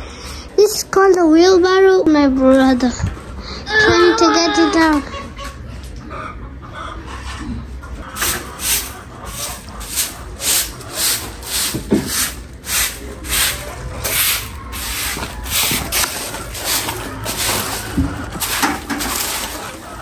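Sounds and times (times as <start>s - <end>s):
broom sweeping concrete floor: 8.1s - 20.0s.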